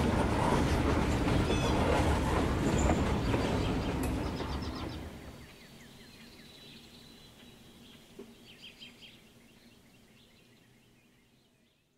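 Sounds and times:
faint bird chirping: 2.8s - 11.9s.

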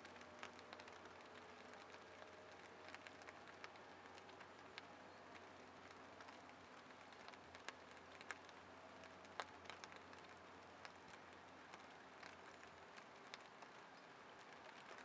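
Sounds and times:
light rain on a pond: 0.0s - 15.0s
soft drop ticks: 7.1s - 15.0s.

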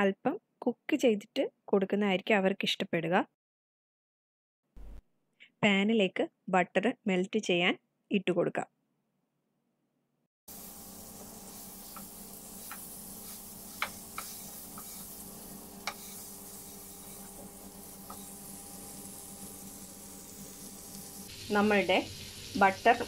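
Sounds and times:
butter sizzling in frying pan: 10.5s - 23.0s
wooden spatula knocking on pan: 13.8s - 14.9s.

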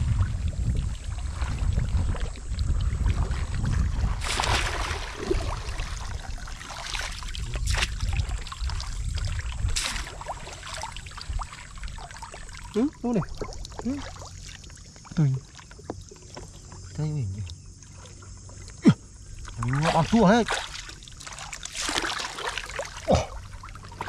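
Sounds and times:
wind rumble on microphone: 0.0s - 14.0s
pond water sloshing and splashing: 0.0s - 24.0s.

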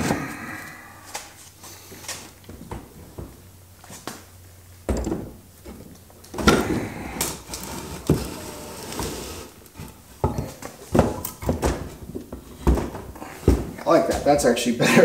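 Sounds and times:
scraping and rustling: 5.6s - 14.3s.

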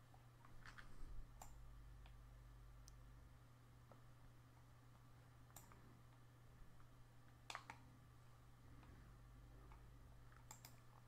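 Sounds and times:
low steady hum: 0.0s - 11.0s
computer mouse clicks: 0.1s - 2.2s, 5.5s - 6.2s, 6.8s - 7.9s, 9.6s - 11.0s.

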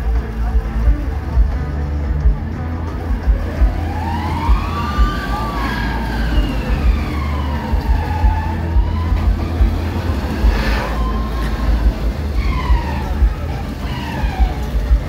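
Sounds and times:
fairground ride rumble: 0.0s - 15.0s
low thumps: 0.6s - 15.0s
siren-like wail: 3.4s - 15.0s.

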